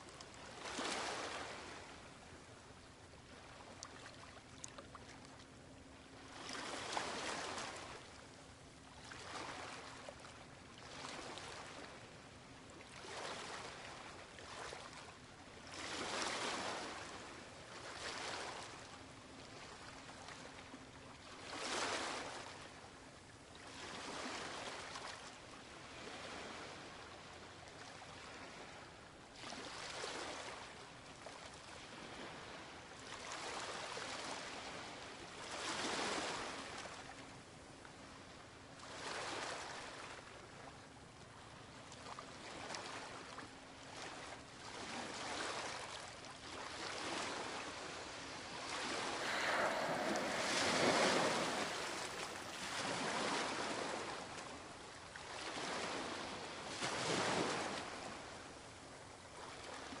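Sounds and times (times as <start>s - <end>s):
sea water washing and splashing: 48.6s - 54.0s.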